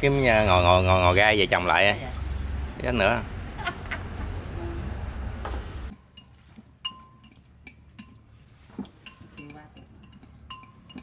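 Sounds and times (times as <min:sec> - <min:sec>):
chopsticks clinking on clay pot: 0:06.1 - 0:08.3, 0:08.9 - 0:11.0.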